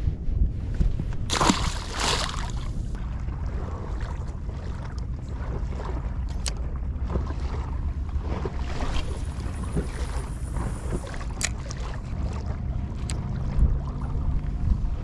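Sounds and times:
wind rumble on microphone: 0.0 - 15.0
fish splashing into water: 1.3 - 2.7.

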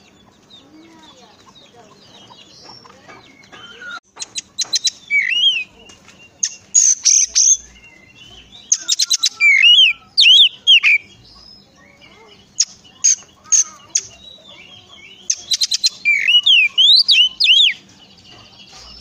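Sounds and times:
bird sharp clicks: 2.6 - 7.6, 15.3 - 19.0
bird singing whistled notes: 2.7 - 19.0
harsh rasping bird call: 3.6 - 5.7, 8.6 - 11.2, 12.1 - 14.3, 15.0 - 17.8.

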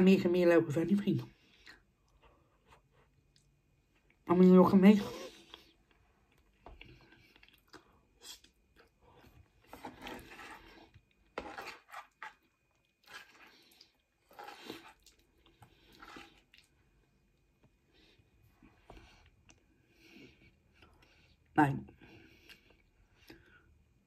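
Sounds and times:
wet chewing: 5.2 - 17.0.

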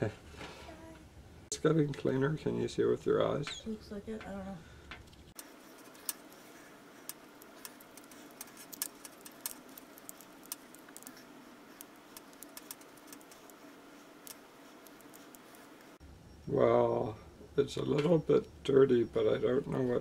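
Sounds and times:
faint irregular clicks: 4.2 - 16.0
light scraping in wire wool: 5.4 - 16.0.

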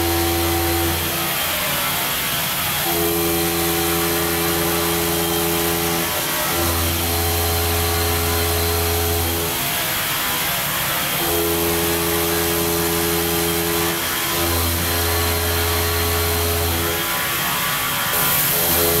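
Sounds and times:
hiss of wet stone cutting: 0.0 - 19.0.

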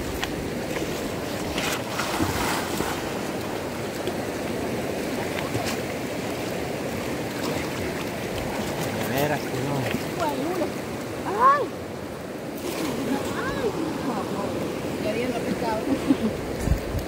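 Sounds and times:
river water splashing and lapping: 0.0 - 17.0
small splashes: 0.2 - 11.2, 12.6 - 14.0.

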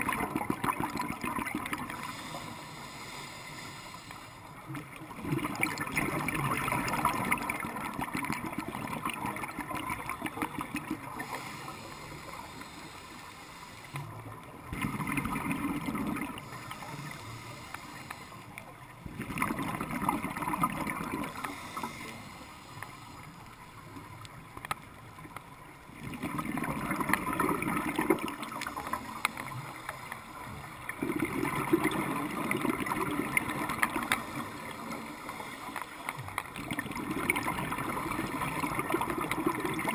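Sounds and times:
scuba regulator exhaled bubbles: 0.0 - 2.3, 5.0 - 11.5, 14.7 - 17.0, 19.1 - 22.0, 26.0 - 29.7, 30.9 - 35.1, 36.6 - 39.9.

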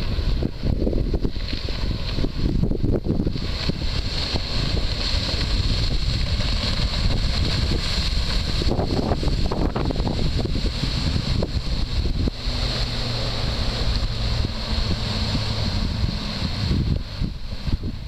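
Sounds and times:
outboard engines running: 0.0 - 18.0
wind buffeting on microphone: 0.0 - 18.0.

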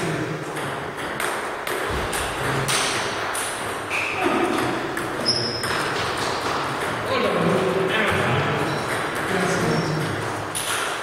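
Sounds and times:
table tennis balls clicking: 0.0 - 11.0
high squeaks: 5.2 - 6.0.

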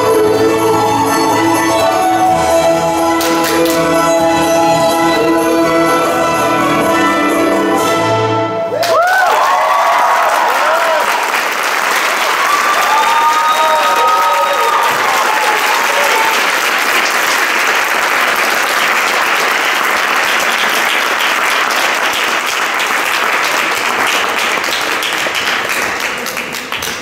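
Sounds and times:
audience applauding: 3.2 - 3.9, 8.7 - 27.0.

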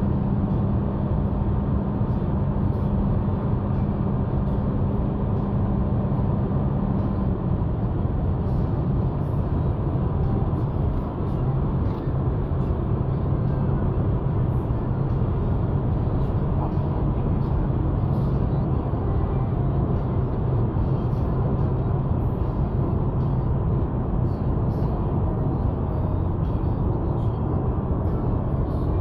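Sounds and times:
car engine droning: 0.0 - 29.0
road and wind noise: 0.0 - 29.0.

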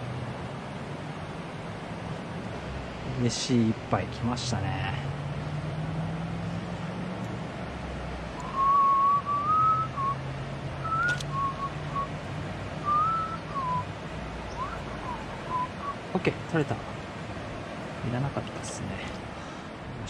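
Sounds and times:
person whistling a tune: 8.4 - 10.2, 10.8 - 12.2, 12.8 - 13.9.

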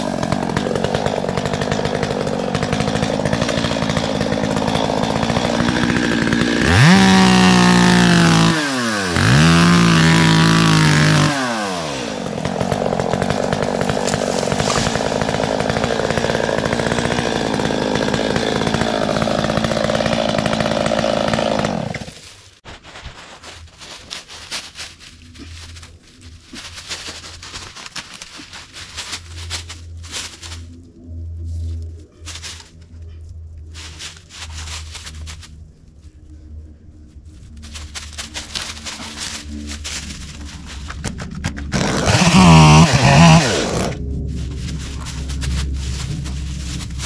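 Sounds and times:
chainsaw cutting wood: 0.0 - 22.3, 37.8 - 47.0.

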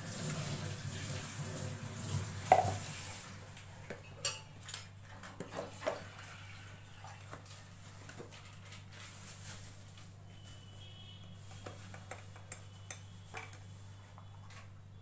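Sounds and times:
kitchen utensils clinking and knocking: 2.4 - 3.0, 3.9 - 6.3.

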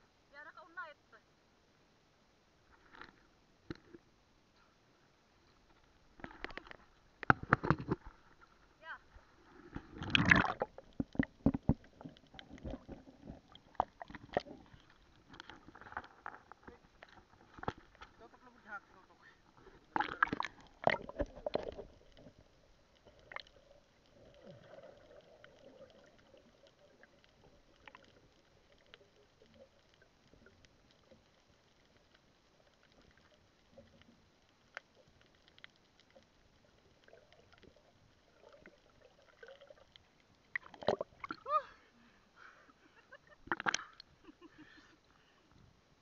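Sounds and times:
small underwater clicks: 5.5 - 18.2, 19.5 - 41.4, 43.3 - 44.2
water splashing: 6.1 - 41.9, 42.9 - 44.5.

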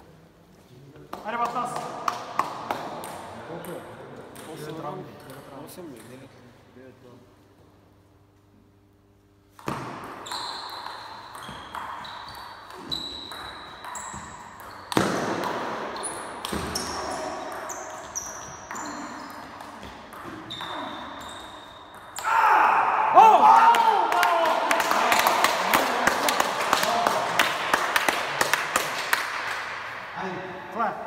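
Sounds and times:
table tennis ball hits echoing: 9.5 - 30.2.

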